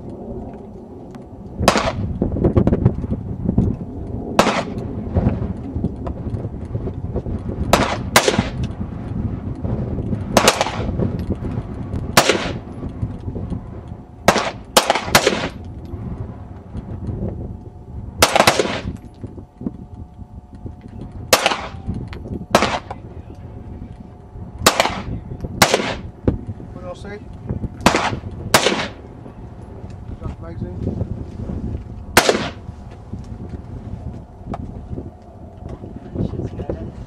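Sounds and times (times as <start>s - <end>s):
pistol shots: 1.7s - 2.1s, 4.4s - 4.8s, 7.7s - 8.6s, 10.4s - 10.9s, 12.2s - 12.6s, 14.3s - 15.6s, 18.2s - 19.0s, 21.3s - 21.8s, 22.5s - 23.0s, 24.6s - 26.1s, 27.8s - 29.0s, 32.2s - 32.6s.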